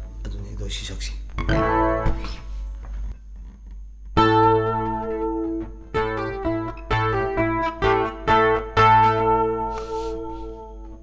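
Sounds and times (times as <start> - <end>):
acoustic guitar chords: 1.4 - 2.6, 4.1 - 11.0.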